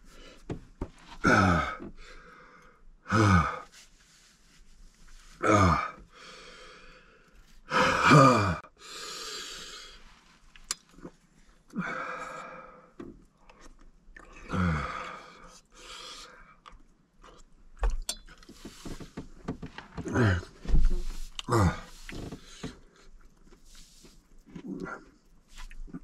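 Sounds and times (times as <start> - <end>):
man groaning: 1.2 - 1.9, 3.1 - 3.6, 5.4 - 6.0, 7.7 - 8.7, 14.4 - 15.2, 20.0 - 20.6, 21.4 - 22.0
heavy hissing breaths and gasps: 5.4 - 10.0, 20.0 - 22.9.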